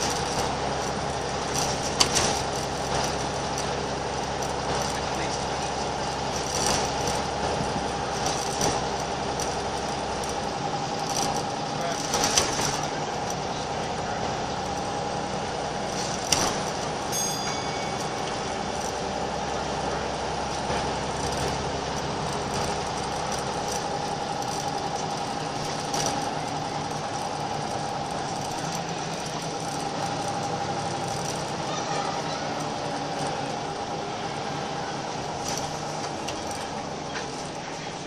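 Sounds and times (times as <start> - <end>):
bus diesel engine running: 0.0 - 38.0
short ding: 17.1 - 18.2.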